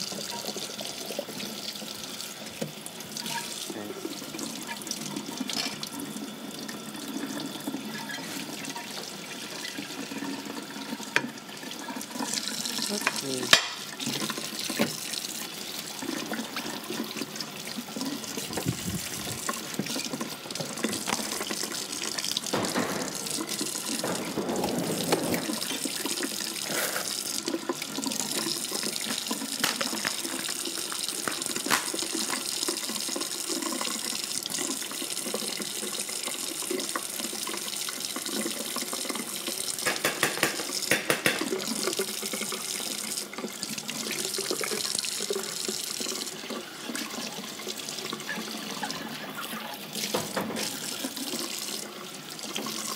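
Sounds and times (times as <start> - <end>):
tap water running: 0.0 - 52.9
dishes clinking: 13.0 - 14.0, 19.4 - 26.9.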